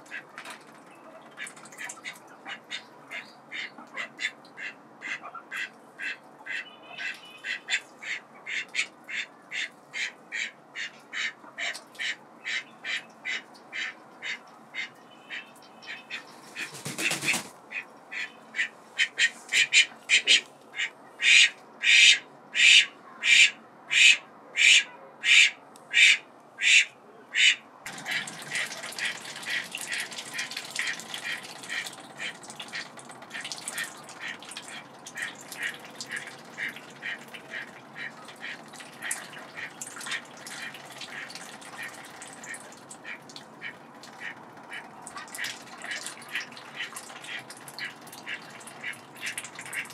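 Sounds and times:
ducks dabbling in water: 0.0s - 23.0s, 27.4s - 49.9s
duck quacking: 2.5s - 49.9s
duck flapping wings: 16.4s - 17.6s.

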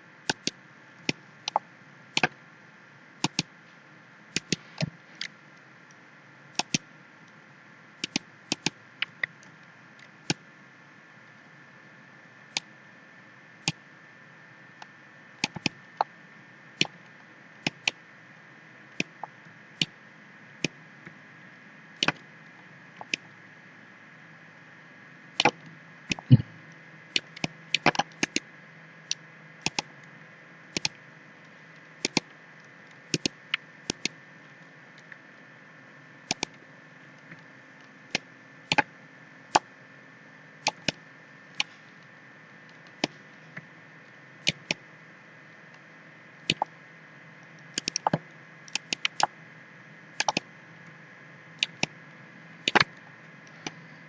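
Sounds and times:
faint steady hum: 0.0s - 54.0s
computer mouse clicking: 0.3s - 1.6s, 3.2s - 3.5s, 4.3s - 5.3s, 6.6s - 6.8s, 8.0s - 8.8s, 15.4s - 16.1s, 23.0s - 23.2s, 25.4s - 26.4s, 27.2s - 28.4s, 29.1s - 29.9s, 30.7s - 31.0s, 32.0s - 32.3s, 33.0s - 34.2s, 36.3s - 36.6s, 40.6s - 41.0s, 44.4s - 44.8s, 46.5s - 46.7s, 47.7s - 49.3s, 50.2s - 50.4s, 52.7s - 52.9s.

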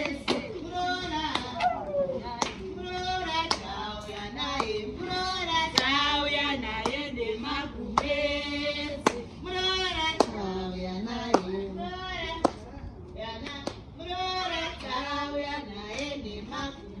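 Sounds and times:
women singing together: 0.0s - 17.0s
hand claps: 1.3s - 1.8s, 2.4s - 2.7s, 3.4s - 3.8s, 4.6s - 4.8s, 5.7s - 6.0s, 9.0s - 9.2s, 10.2s - 10.4s, 12.4s - 12.7s, 13.4s - 13.8s, 15.9s - 16.2s.

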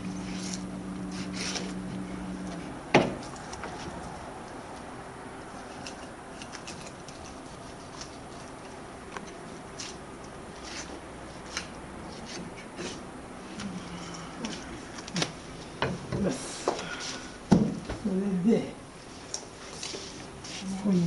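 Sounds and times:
steady background hiss: 0.0s - 21.0s
knife scraping fish bones: 5.6s - 10.0s.

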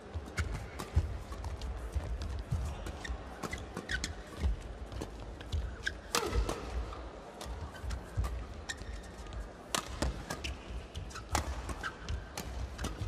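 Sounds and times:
racket hitting shuttlecock: 0.4s - 13.0s
shoe squeaks: 2.9s - 4.6s, 5.6s - 6.3s, 7.7s - 9.2s.

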